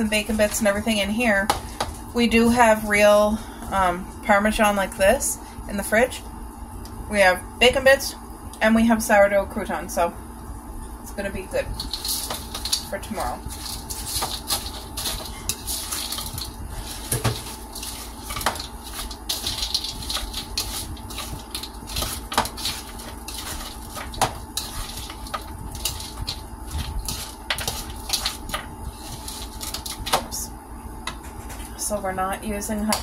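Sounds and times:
lettuce rustling: 0:11.7 - 0:30.2.

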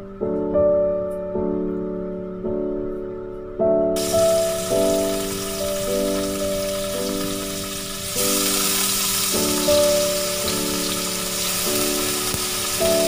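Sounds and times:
background music: 0:00.0 - 0:13.0
beancurd sizzling in oil: 0:04.0 - 0:13.0.

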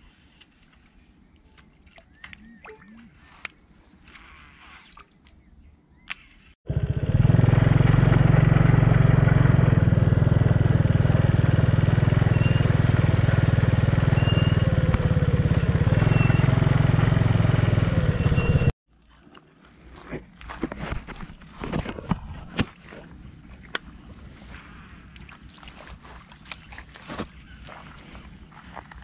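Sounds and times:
small motorcycle engine running: 0:06.7 - 0:18.8.

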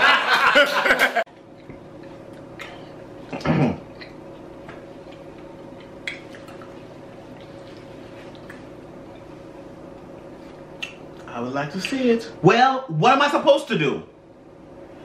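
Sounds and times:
steady electrical hum: 0:00.0 - 0:15.0
eating mouth sounds: 0:01.5 - 0:09.3.

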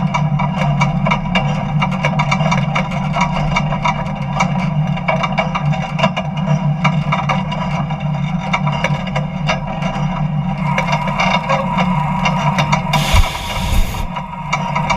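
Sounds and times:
jet engine running: 0:12.9 - 0:14.4.

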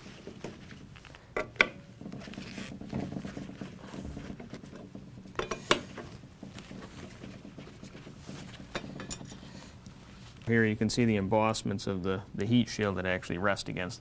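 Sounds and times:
screw scraping and rattling: 0:00.2 - 0:09.6.

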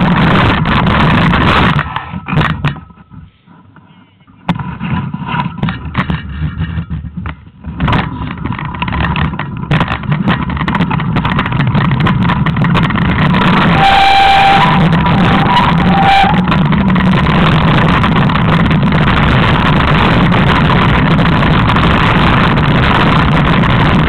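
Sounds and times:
off-road vehicle engine running hard: 0:00.0 - 0:02.8, 0:05.6 - 0:24.0
wind rushing on camera: 0:00.0 - 0:03.3, 0:04.4 - 0:24.0
steady higher tone: 0:13.2 - 0:19.4.

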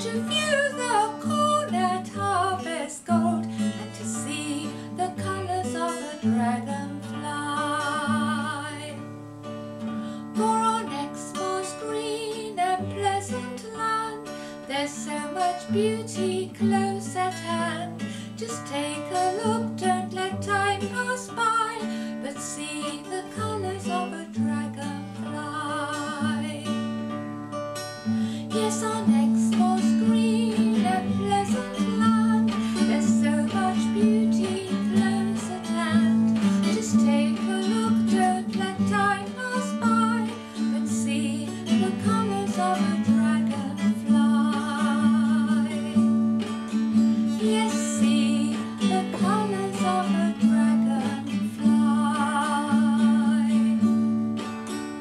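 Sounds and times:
woman singing: 0:00.0 - 0:09.2, 0:10.2 - 0:27.0, 0:28.3 - 0:54.2
acoustic guitar chords: 0:00.0 - 0:55.0.

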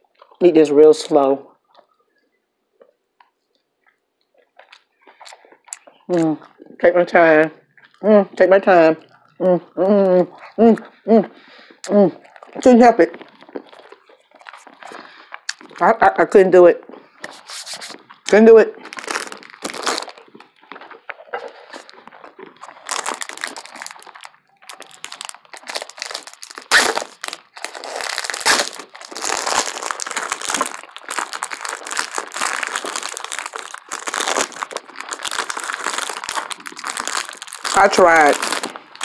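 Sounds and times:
crinkling and crumpling: 0:00.0 - 0:39.0
sharp crack: 0:23.0 - 0:39.0.

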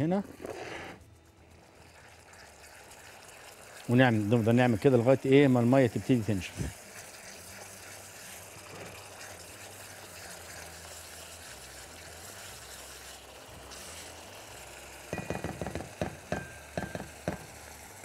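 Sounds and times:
meat sizzling and bubbling in pot: 0:00.0 - 0:18.0
utensil knocking and scraping pan: 0:15.2 - 0:17.6.

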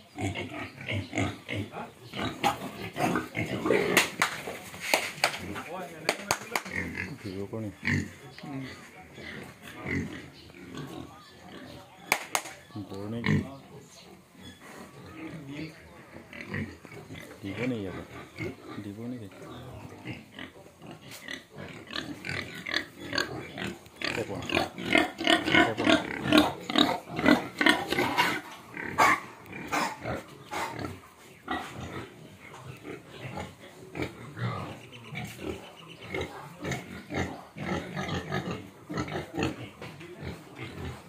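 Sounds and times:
pigs grunting: 0:00.0 - 0:11.9, 0:12.9 - 0:41.0
high-pitched pig calls: 0:19.4 - 0:39.6.

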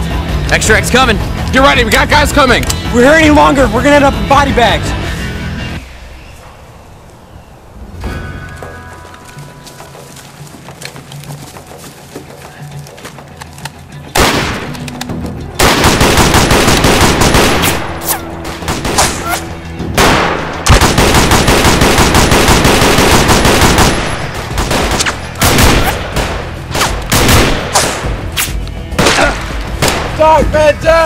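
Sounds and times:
automatic gunfire: 0:14.2 - 0:14.7, 0:15.6 - 0:18.0, 0:20.0 - 0:28.0.

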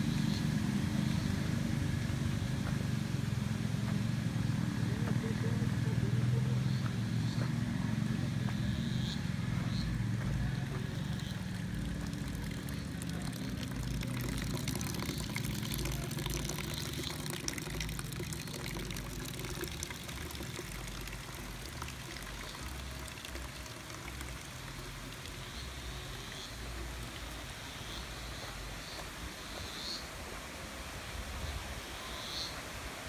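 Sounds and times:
water pouring onto ground: 0:09.4 - 0:29.3.

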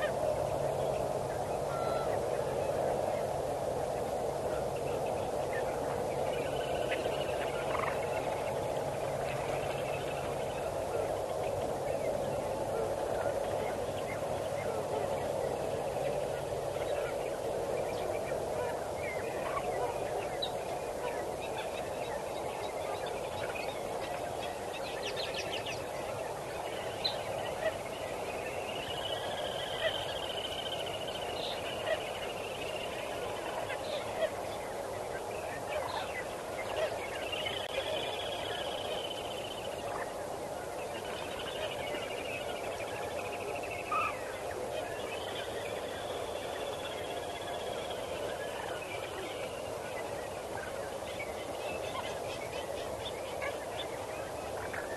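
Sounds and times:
steady background noise: 0:00.0 - 0:54.9
birds chirping and trilling: 0:04.8 - 0:40.2.

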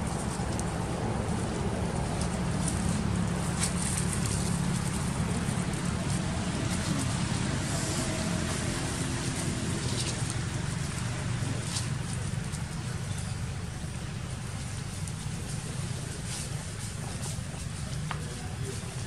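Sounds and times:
outdoor background rumble and hiss: 0:00.0 - 0:19.0.

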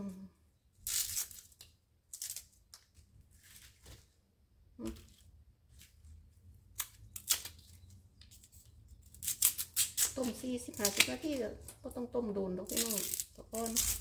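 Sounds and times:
knife scraping bamboo shoots: 0:08.3 - 0:11.5, 0:12.6 - 0:14.0.

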